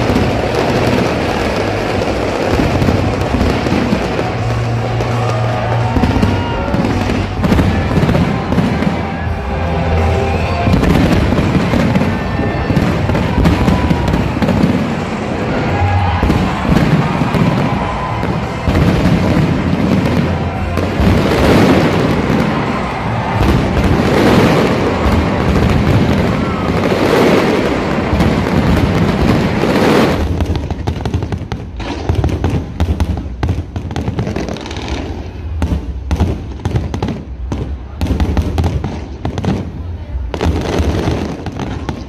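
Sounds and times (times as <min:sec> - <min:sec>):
fireworks bangs and crackling: 0:00.0 - 0:42.0.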